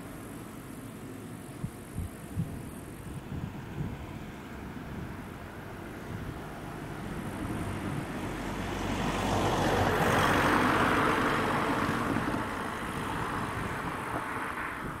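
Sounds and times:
car passing by: 0:03.1 - 0:15.0.

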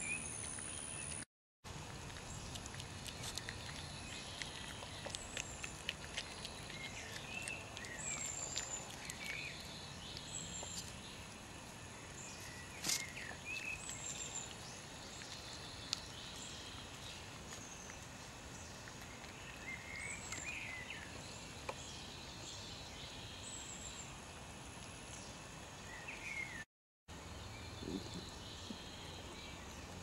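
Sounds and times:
badgers snuffling and crunching nuts: 0:00.0 - 0:22.6.

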